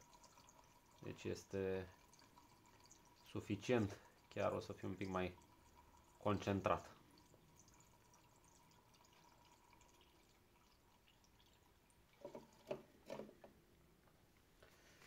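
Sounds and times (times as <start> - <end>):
liquid trickling from a can: 0.0 - 13.5.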